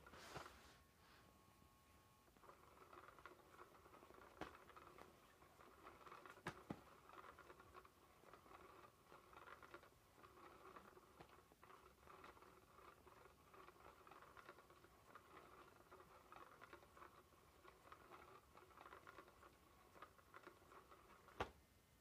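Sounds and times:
rustling scratch of fabric: 0.0s - 0.9s
small motor whirring: 2.3s - 21.4s.

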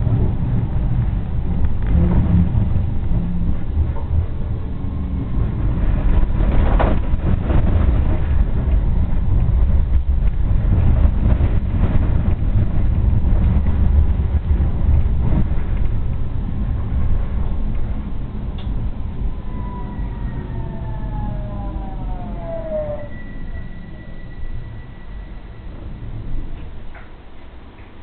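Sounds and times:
tram clatter: 0.0s - 28.0s
tram wheels rumbling on rails: 0.0s - 28.0s.

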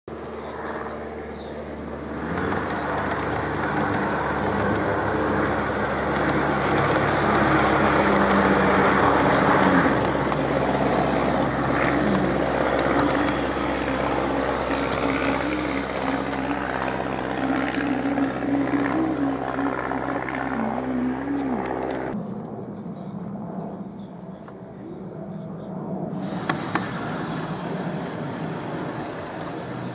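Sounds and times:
rail noise: 2.0s - 22.5s, 26.1s - 29.9s
model train mechanical hum: 2.1s - 20.9s, 26.1s - 29.9s.

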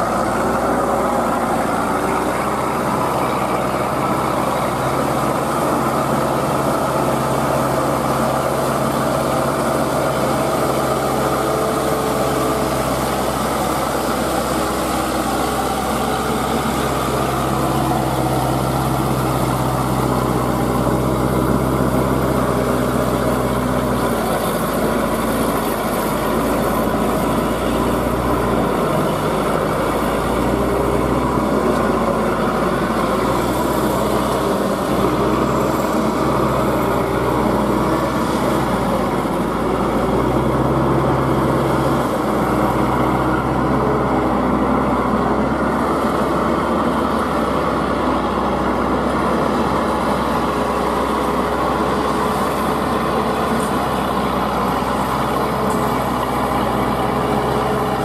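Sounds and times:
diesel engine running under load: 0.0s - 58.0s.

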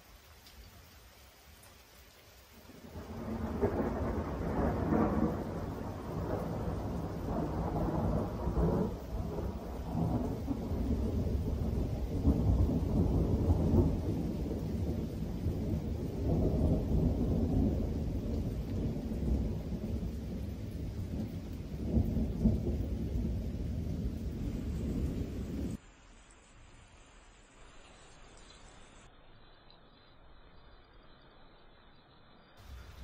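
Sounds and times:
thunder rumbling: 2.7s - 25.8s, 32.6s - 33.0s.

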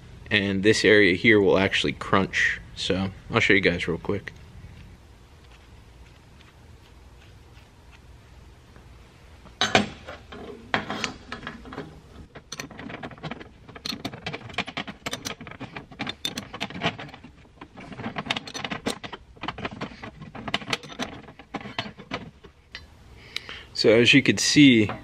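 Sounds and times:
wrench metal clicks and clinks: 12.4s - 22.2s.

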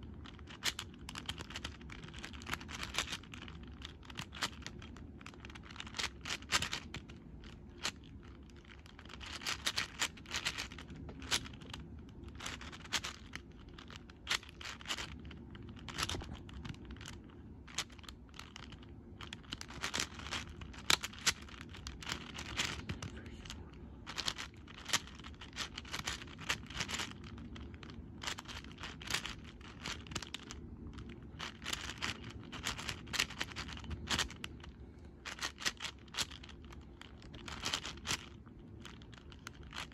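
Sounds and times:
puzzle cube clicking and scraping: 0.0s - 39.9s.

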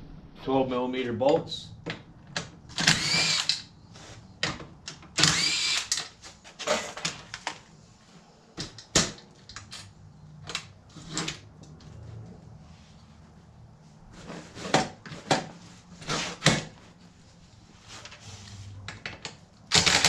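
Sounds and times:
power tool spinning out bolts: 2.7s - 3.6s, 5.2s - 6.1s, 19.7s - 20.0s.

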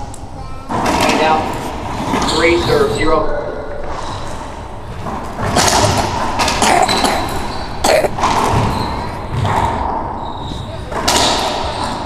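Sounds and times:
racquetball knocks echoing: 5.1s - 10.2s, 10.9s - 12.0s.

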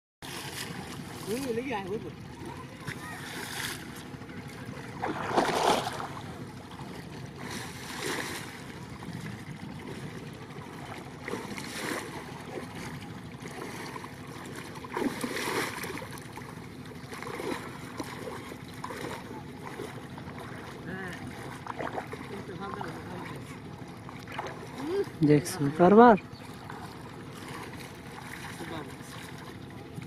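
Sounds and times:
person wading through water: 0.2s - 30.0s.

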